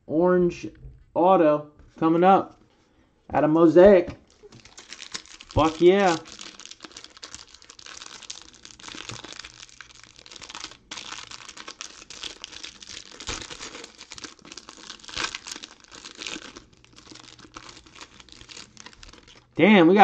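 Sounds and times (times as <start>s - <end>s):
plastic wrapper crinkling: 4.2s - 19.6s.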